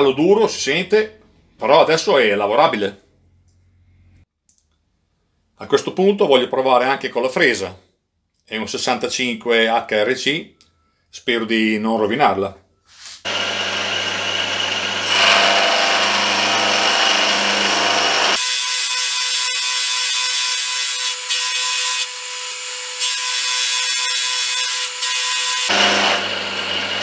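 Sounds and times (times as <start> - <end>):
milling machine cutting steel: 13.3 - 27.0.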